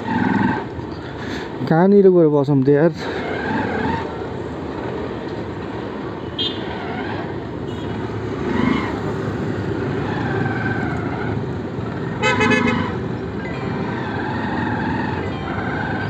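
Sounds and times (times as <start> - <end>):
city traffic hum: 0.0 - 16.0
motorcycle engine: 7.7 - 16.0.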